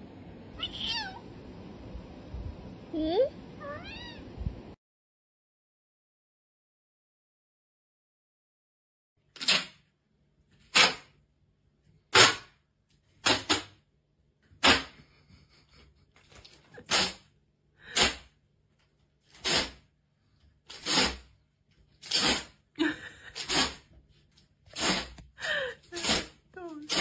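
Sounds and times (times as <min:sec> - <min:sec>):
cat sneezing: 0:16.8 - 0:17.3, 0:17.9 - 0:18.3, 0:23.4 - 0:23.8, 0:25.9 - 0:27.0.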